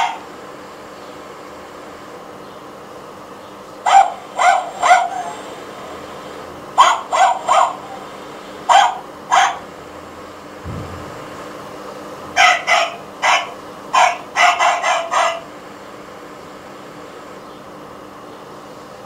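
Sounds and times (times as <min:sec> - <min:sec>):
toy dog yapping: 0:03.9 - 0:05.4, 0:06.8 - 0:08.0, 0:08.7 - 0:09.6, 0:12.4 - 0:15.5.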